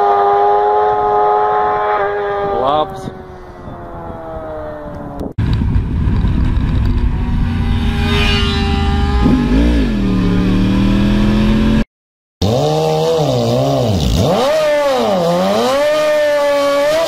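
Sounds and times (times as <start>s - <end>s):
motorcycle passing by: 0.0s - 5.3s, 6.1s - 11.8s
motorcycle engine riding fast: 0.0s - 11.8s, 12.4s - 17.0s
wind rush: 2.4s - 11.4s.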